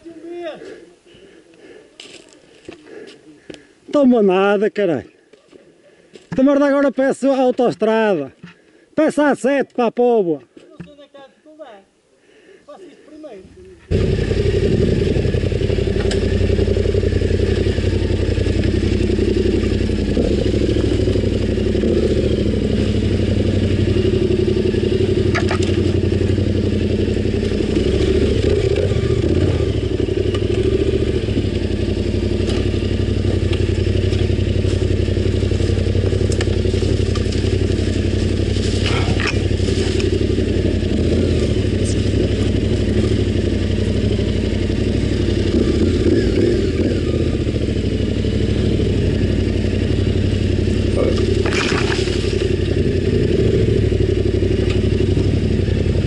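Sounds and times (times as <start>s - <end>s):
motorcycle engine running: 13.5s - 56.0s.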